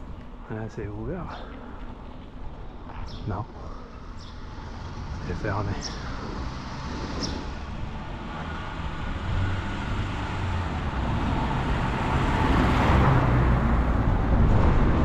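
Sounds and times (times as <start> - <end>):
car passing by: 4.2 - 15.0.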